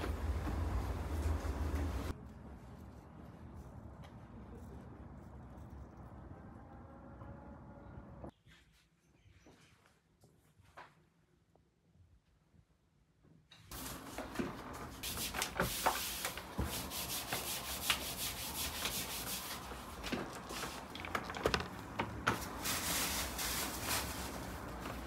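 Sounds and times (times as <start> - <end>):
hands rubbing dough: 13.8 - 21.4.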